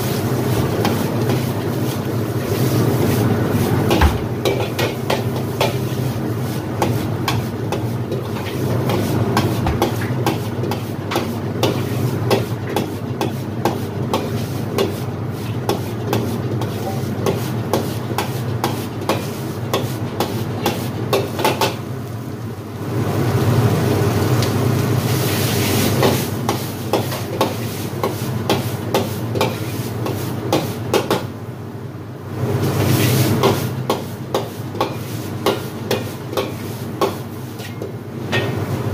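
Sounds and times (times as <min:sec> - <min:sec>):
food sizzling: 0:00.0 - 0:12.3, 0:18.7 - 0:30.4.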